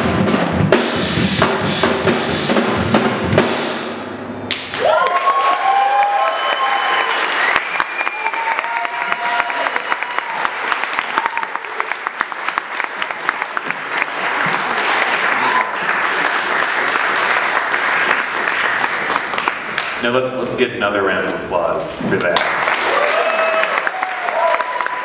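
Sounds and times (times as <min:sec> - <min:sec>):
audience applauding: 0:04.6 - 0:20.0, 0:22.3 - 0:25.0
cheering voices: 0:04.7 - 0:19.0, 0:22.4 - 0:25.0.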